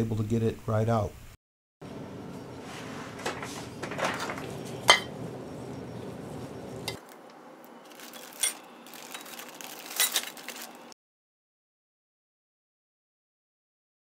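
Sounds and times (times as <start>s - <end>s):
metal parts clinking on sheet pan: 7.9s - 10.8s.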